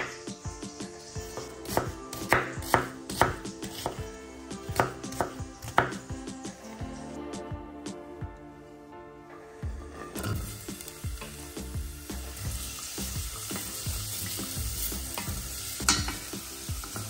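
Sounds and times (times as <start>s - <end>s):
knife chopping on wooden board: 1.2s - 4.0s, 4.7s - 6.1s.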